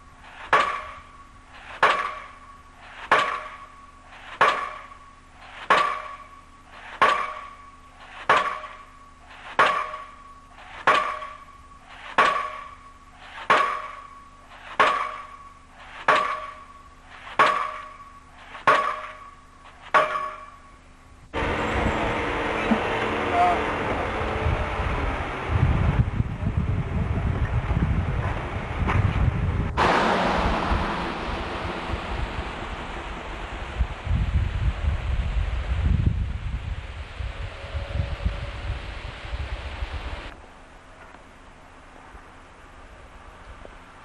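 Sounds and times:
pile hammer ringing blows: 0:00.5 - 0:20.8.

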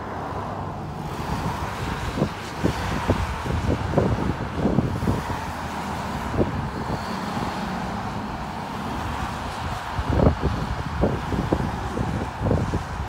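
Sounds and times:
highway traffic passing: 0:00.0 - 0:13.0.

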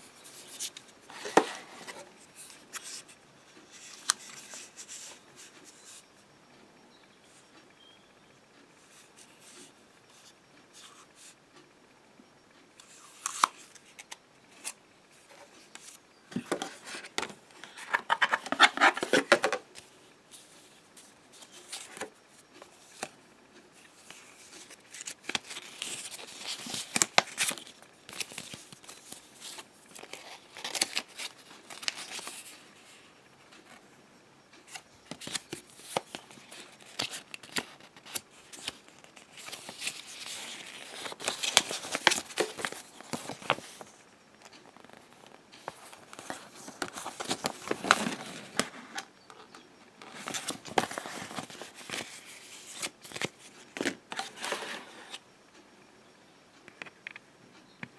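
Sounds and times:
paper rustling and crinkling: 0:14.6 - 0:22.2, 0:24.0 - 0:33.0, 0:34.7 - 0:55.2.

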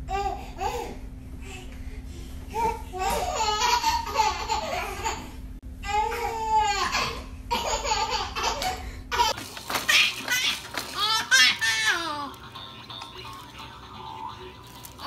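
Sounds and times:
baby laughing and babbling: 0:02.5 - 0:12.5.

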